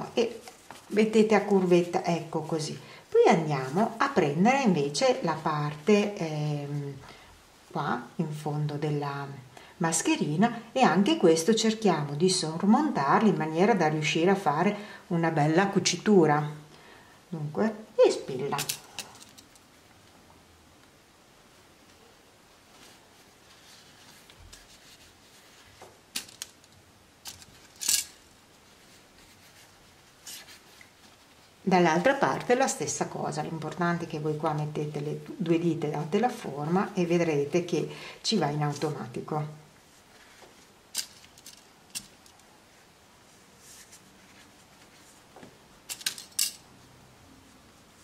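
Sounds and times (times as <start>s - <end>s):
fabric rustling: 0.0s - 7.0s, 21.5s - 35.2s, 35.8s - 46.8s.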